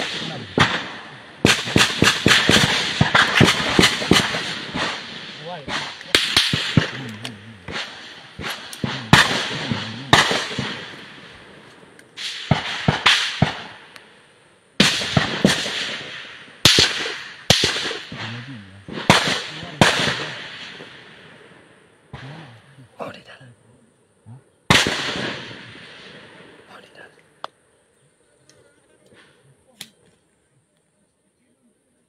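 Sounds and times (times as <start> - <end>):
rifle shots echoing: 0.0 - 14.2, 14.8 - 22.5, 24.7 - 26.8.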